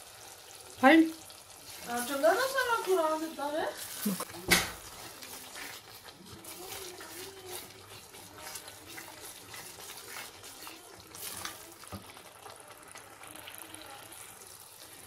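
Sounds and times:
food sizzling in oil: 0.0 - 15.0
wooden spoon scraping pot: 1.6 - 12.2.

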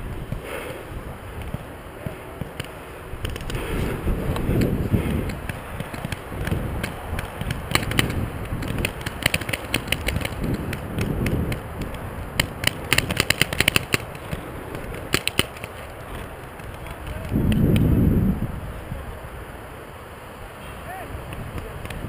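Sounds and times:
wind rumble on microphone: 0.0 - 19.7, 20.8 - 22.0
paintball markers firing: 4.4 - 17.8.

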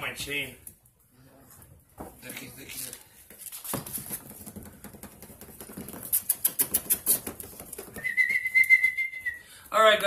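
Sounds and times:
puppy claws clicking on floor: 2.7 - 8.1
high steady whistle: 8.0 - 9.6.

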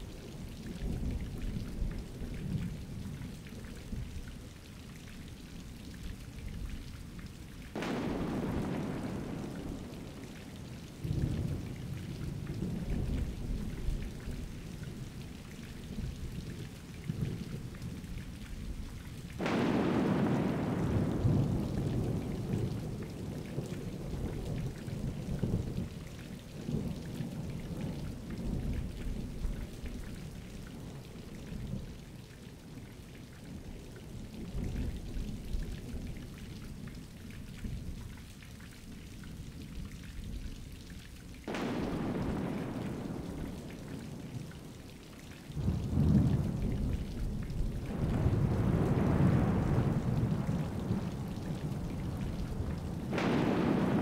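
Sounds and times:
steady rain: 0.0 - 54.0
close thunderclap: 7.8 - 14.2, 19.4 - 26.0, 41.5 - 44.7, 45.6 - 54.0
low thunder rumbling: 7.8 - 32.2, 41.4 - 54.0.

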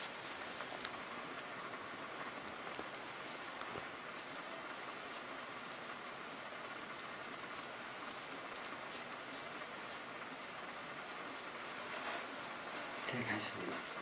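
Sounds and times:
steady hiss: 0.0 - 14.0
ink brush scratching on paper: 3.2 - 3.5, 4.1 - 6.0, 6.7 - 14.0.

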